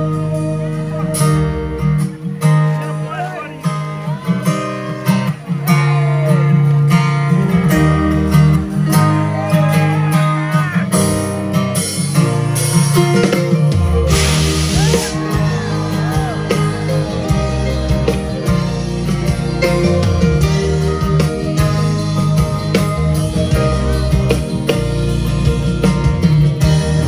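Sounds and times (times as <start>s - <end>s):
live band playing: 0.0s - 27.0s
cymbal crash: 14.1s - 15.3s.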